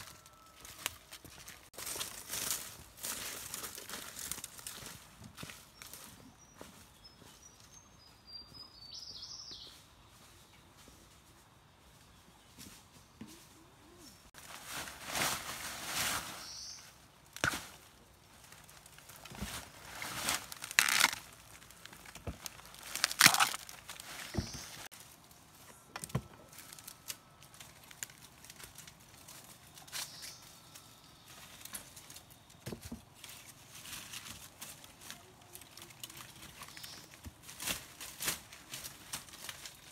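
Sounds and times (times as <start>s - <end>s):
rustling of dry bamboo leaves: 0.0s - 7.8s, 9.6s - 39.9s
twigs snapping: 20.3s - 24.6s.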